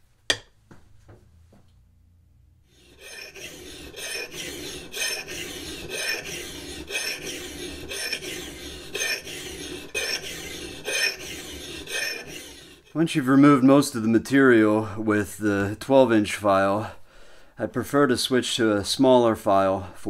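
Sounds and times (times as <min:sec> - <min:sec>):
file rasping on steel: 0:02.7 - 0:13.1.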